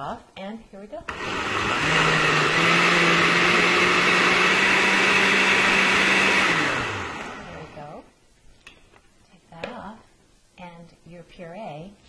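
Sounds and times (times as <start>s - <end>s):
blender running: 1.1s - 7.8s.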